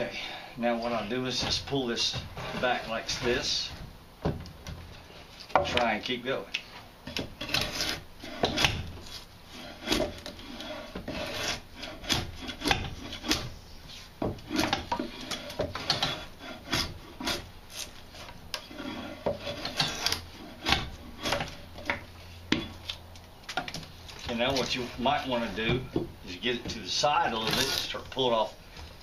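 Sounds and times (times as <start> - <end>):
drawknife scraping wood: 0.8 - 3.7, 7.1 - 22.8, 27.3 - 28.1.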